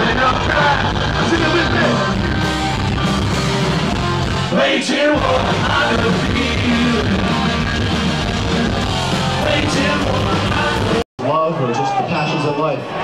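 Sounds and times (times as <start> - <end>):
live punk rock band playing: 0.0 - 11.0
person singing: 9.4 - 11.0.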